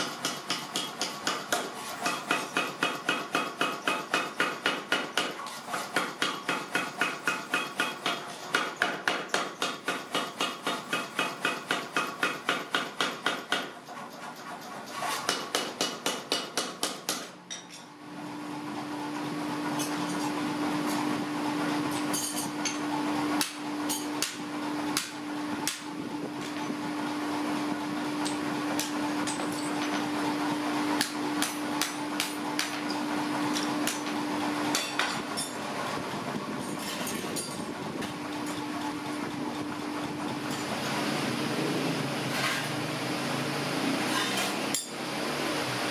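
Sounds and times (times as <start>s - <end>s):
power hammer pounding hot metal: 0.0s - 13.8s, 15.2s - 17.4s, 23.4s - 25.9s, 31.0s - 35.6s
steady machine hum: 17.3s - 45.9s.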